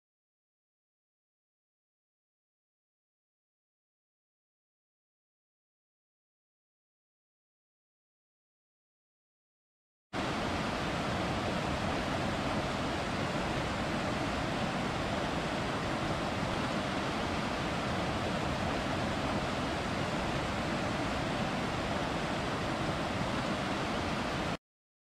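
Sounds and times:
river rushing over rapids: 10.2s - 24.6s.

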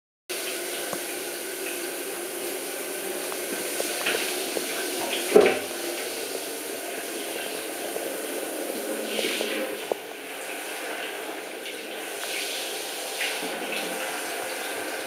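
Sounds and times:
shower water running: 0.3s - 15.0s
louder knock or splash: 5.3s - 5.7s.

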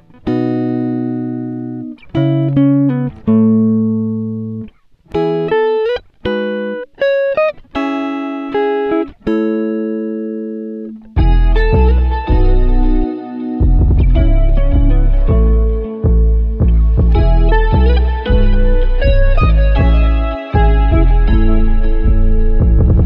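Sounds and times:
slow guitar chords: 0.0s - 23.0s.

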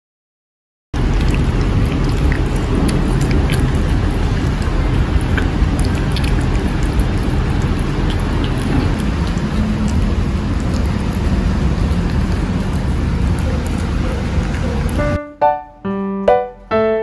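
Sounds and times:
cat eating wet food: 1.0s - 15.2s
low rumbling noise: 1.0s - 17.0s.

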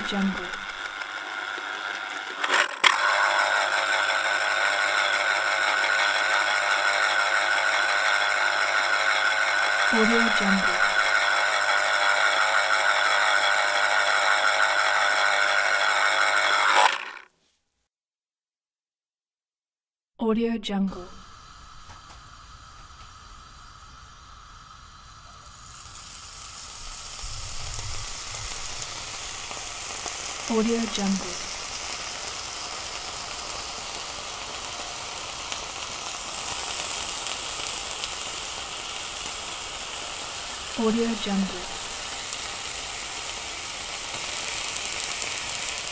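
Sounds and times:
food sizzling in a pan: 0.0s - 2.4s, 3.0s - 16.8s, 21.0s - 45.9s
kitchen appliance motor whining: 0.0s - 17.3s, 21.1s - 45.9s.

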